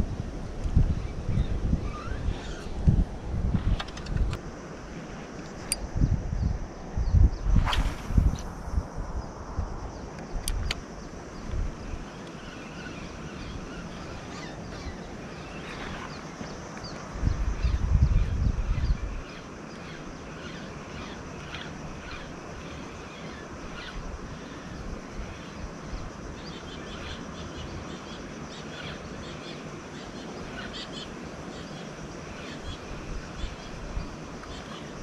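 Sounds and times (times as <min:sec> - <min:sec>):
low rumble on microphone: 0:05.9 - 0:10.7.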